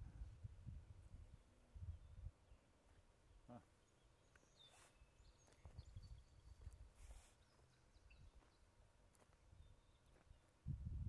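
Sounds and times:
faint high bird chirps: 0:03.5 - 0:08.8, 0:09.5 - 0:10.5.

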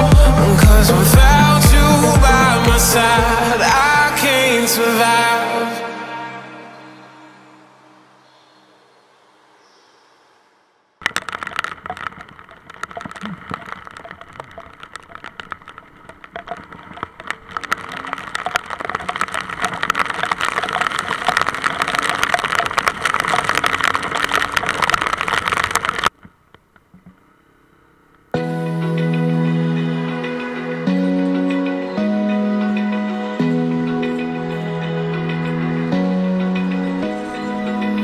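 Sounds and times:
music: 0:00.0 - 0:08.2, 0:28.4 - 0:38.0
road noise: 0:00.0 - 0:38.0
rain drumming on camera: 0:11.0 - 0:27.2.

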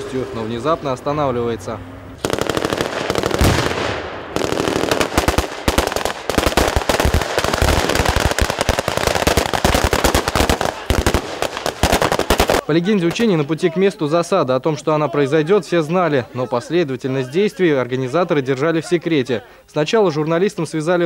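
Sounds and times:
automatic rifle fire: 0:02.2 - 0:13.2.

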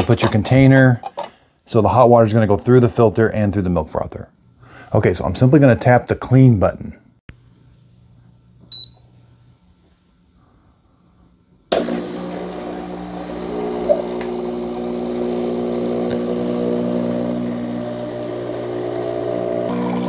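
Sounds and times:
short touch panel beep: 0:08.7 - 0:09.0
water pump humming: 0:11.7 - 0:20.0
water flowing into a jug: 0:11.8 - 0:20.0.

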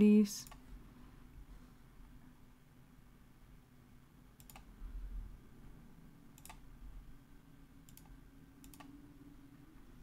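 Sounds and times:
computer mouse clicks: 0:00.4 - 0:00.7, 0:04.4 - 0:04.8, 0:06.3 - 0:06.7, 0:07.8 - 0:09.0.

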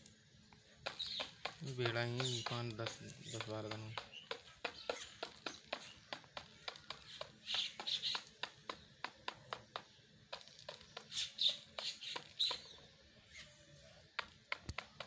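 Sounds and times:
beak pecking grain from plastic tub: 0:00.7 - 0:15.0.

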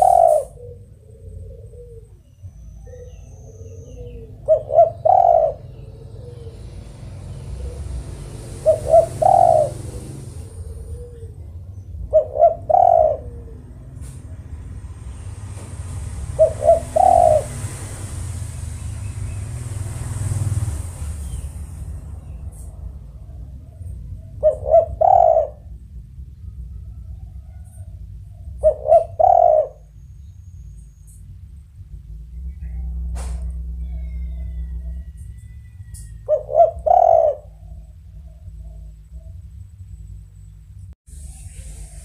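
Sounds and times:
dove cooing: 0:00.0 - 0:14.7, 0:15.7 - 0:19.0, 0:22.2 - 0:30.0, 0:32.6 - 0:39.4
steady low hum: 0:00.0 - 0:42.0.

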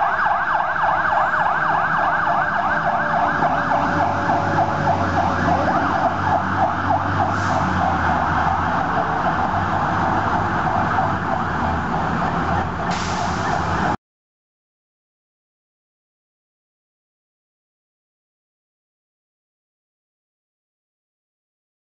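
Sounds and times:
engine and traffic rumble: 0:00.0 - 0:14.0
fire engine siren yelping: 0:00.0 - 0:14.0.

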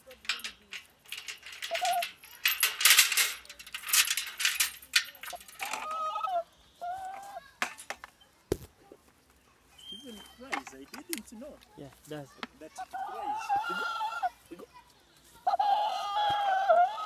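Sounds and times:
bird clattering its bill: 0:00.0 - 0:06.4.

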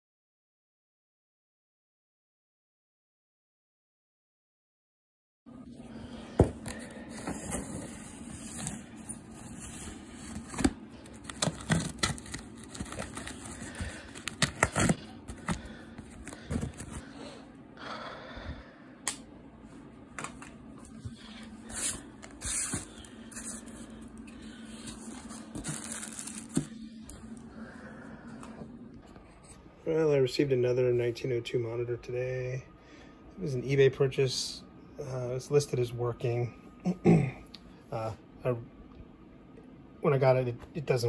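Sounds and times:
plastic bag rustling: 0:06.7 - 0:17.1, 0:20.9 - 0:27.0
scraping and crackling cardboard: 0:06.8 - 0:17.1.

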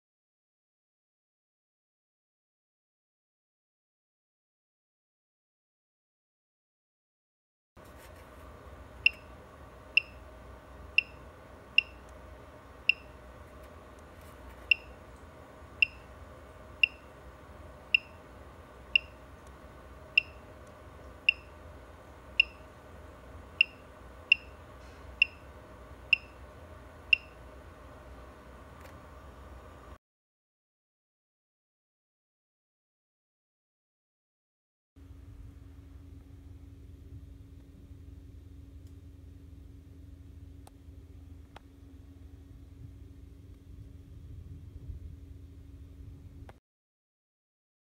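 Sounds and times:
steady low hum: 0:07.8 - 0:30.0, 0:35.0 - 0:46.6
short high keypad beeps: 0:09.0 - 0:09.3, 0:10.0 - 0:10.2, 0:11.0 - 0:11.2, 0:11.8 - 0:12.0, 0:12.9 - 0:13.2, 0:14.7 - 0:15.0, 0:15.8 - 0:16.1, 0:16.8 - 0:17.1, 0:17.9 - 0:18.2, 0:19.0 - 0:19.2, 0:20.2 - 0:20.4, 0:21.3 - 0:21.5, 0:22.4 - 0:22.6, 0:23.6 - 0:24.6.

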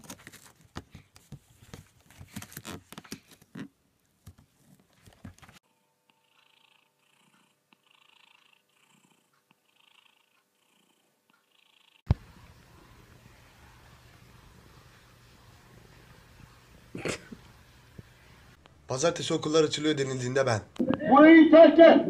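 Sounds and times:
cat purring softly: 0:06.2 - 0:12.0.

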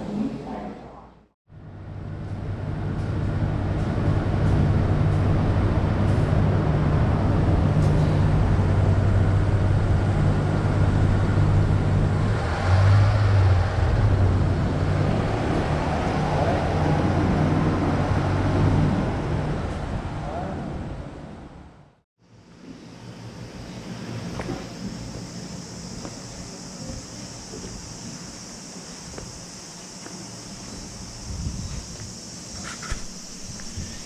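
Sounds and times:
vehicle engine humming: 0:01.5 - 0:22.0
road traffic: 0:01.5 - 0:34.0.

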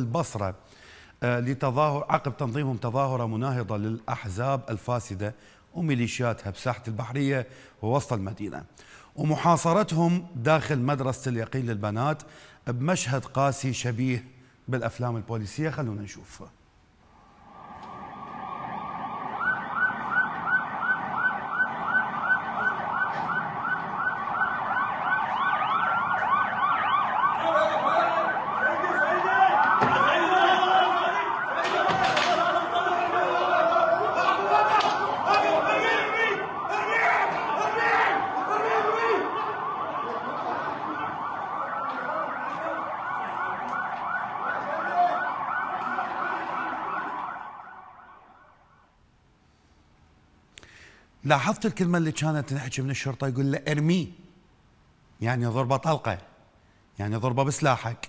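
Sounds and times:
second siren wailing: 0:17.3 - 0:49.0
police siren yelping: 0:17.4 - 0:49.0.

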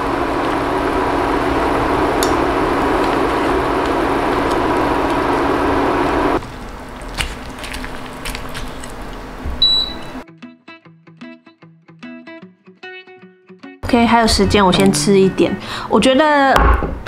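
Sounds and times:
broth boiling hard in a pot: 0:00.0 - 0:08.0
cooktop cooling fan humming: 0:00.0 - 0:10.2.

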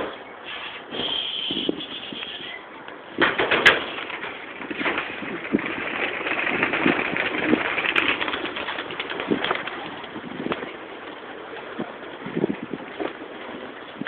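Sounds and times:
pigeon wings flapping: 0:03.2 - 0:11.9.

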